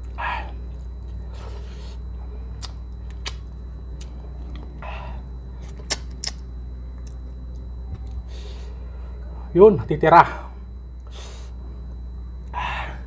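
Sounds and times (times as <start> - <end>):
low hum: 0.0 - 13.0
wet mouth clicks and lip smacks: 2.6 - 3.4, 5.7 - 6.4.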